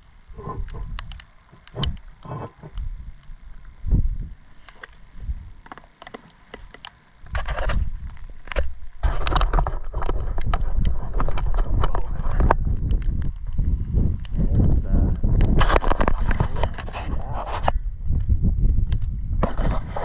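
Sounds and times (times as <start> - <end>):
scattered clicks: 0.0 - 20.0
wind buffeting microphone: 0.2 - 4.5, 7.3 - 20.0.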